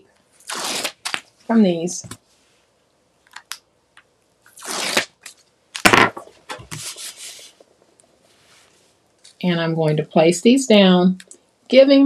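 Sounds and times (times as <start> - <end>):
tape liner peeling: 0.4 - 1.2, 4.5 - 5.9.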